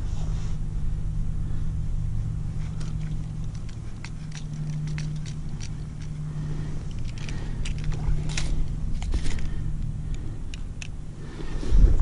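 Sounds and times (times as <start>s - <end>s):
steady low hum: 0.0s - 12.0s
line spool clicking: 2.6s - 11.2s.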